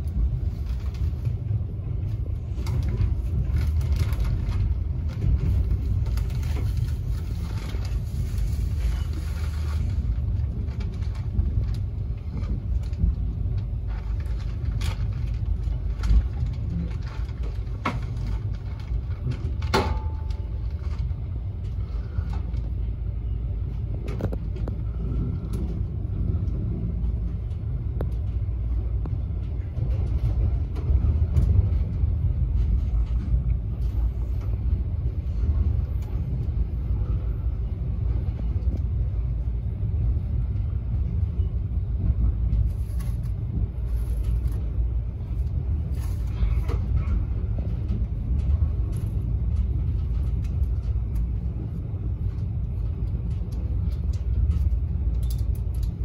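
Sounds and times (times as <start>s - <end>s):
train rumbling on track: 0.0s - 56.0s
train wheels clicking and knocking: 10.3s - 22.8s.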